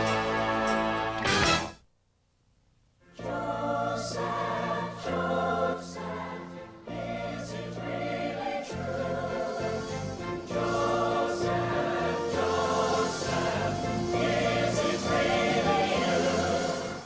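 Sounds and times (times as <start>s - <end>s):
choir singing: 0.0s - 1.6s, 3.2s - 17.0s
sustained instrumental chords: 3.3s - 17.0s
trailer music: 6.1s - 17.0s.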